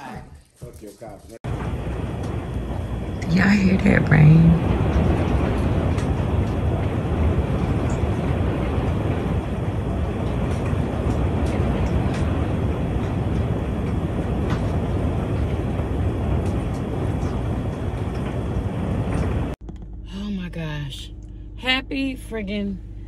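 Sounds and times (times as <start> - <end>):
low rumble: 1.4 - 23.0
heavy rain and wind: 1.5 - 19.6.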